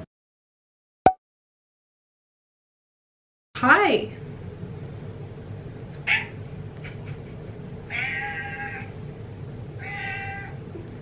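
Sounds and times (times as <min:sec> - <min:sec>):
cat meowing: 0:06.1 - 0:06.4, 0:07.9 - 0:08.9, 0:09.8 - 0:10.6.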